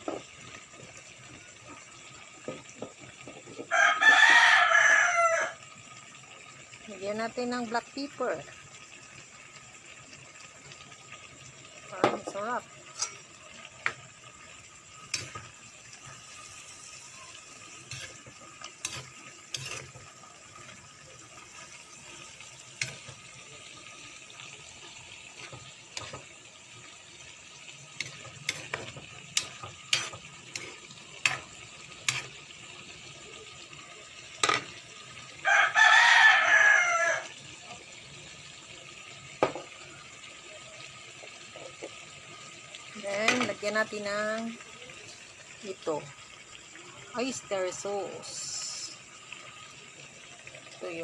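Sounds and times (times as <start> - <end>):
rooster crowing: 3.6 - 5.6, 35.4 - 37.3
spoon scraping a wok: 12.2 - 14.0, 15.0 - 23.5, 24.8 - 26.4, 27.5 - 32.5.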